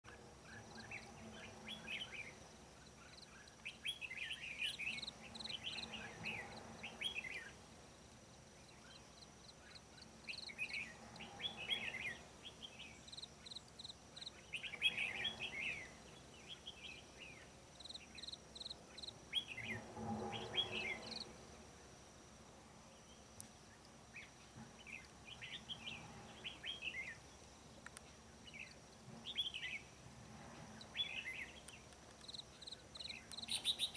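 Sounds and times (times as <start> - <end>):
birds singing warbled phrases: 0.5 - 2.4, 3.0 - 7.6, 9.6 - 13.6, 14.2 - 18.3, 32.6 - 33.9.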